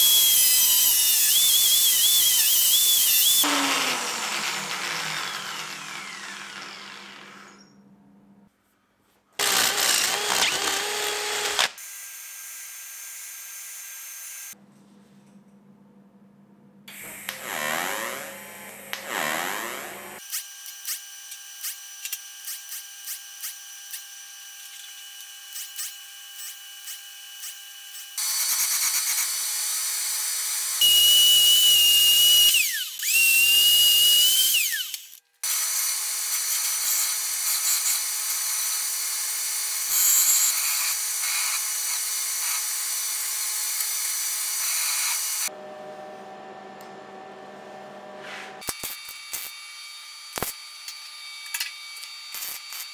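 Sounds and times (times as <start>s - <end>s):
bandsaw cutting steel: 0.0s - 7.7s, 9.4s - 11.8s, 16.9s - 20.9s, 30.8s - 46.0s
power tool noise: 0.0s - 7.7s, 9.4s - 14.6s, 16.9s - 24.0s, 28.2s - 52.9s
welding arc with light ticks: 48.6s - 49.6s, 50.3s - 52.9s.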